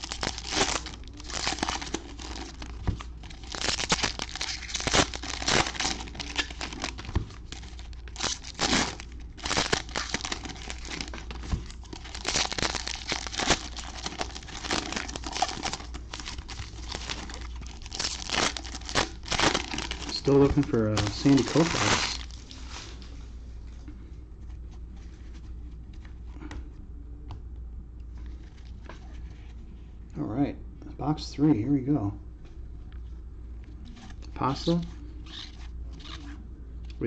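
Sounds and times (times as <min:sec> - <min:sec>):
foil wrappers crinkling and tearing: 0:00.0 - 0:23.1
steady low hum: 0:00.0 - 0:37.0.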